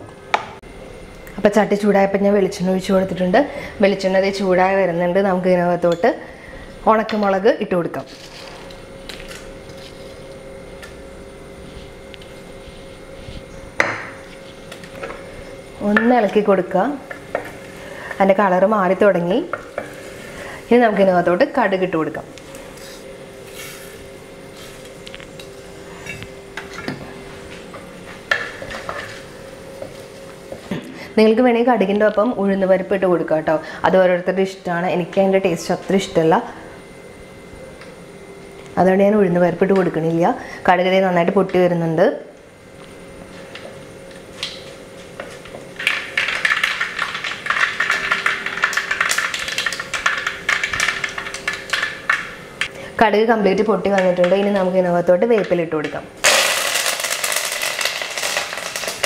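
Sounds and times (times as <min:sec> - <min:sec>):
faint hum: 0:00.0 - 0:59.0
oil sizzling: 0:45.6 - 0:52.7, 0:56.2 - 0:59.0
seeds popping in hot oil: 0:45.8 - 0:52.7, 0:55.4 - 0:59.0.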